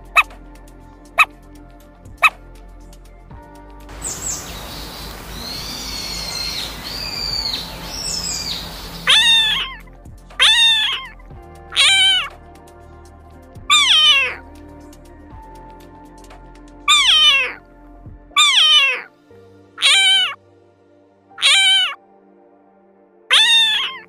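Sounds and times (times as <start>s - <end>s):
background music: 0.0s - 24.0s
high chirps: 3.9s - 9.8s, 10.4s - 11.2s, 11.8s - 12.3s, 13.7s - 14.4s, 16.9s - 17.6s, 18.4s - 19.1s, 19.8s - 20.4s, 21.4s - 22.0s, 23.3s - 24.0s
cat meowing: 5.3s - 9.8s, 10.4s - 11.1s, 11.7s - 12.3s, 13.7s - 14.4s, 16.9s - 17.6s, 18.4s - 19.1s, 19.8s - 20.4s, 21.4s - 22.0s, 23.3s - 24.0s
cat hissing: 8.0s - 9.8s, 10.4s - 11.1s, 11.8s - 12.3s, 13.7s - 14.4s, 16.9s - 17.6s, 18.4s - 19.1s, 19.8s - 20.4s, 21.4s - 22.0s, 23.3s - 24.0s.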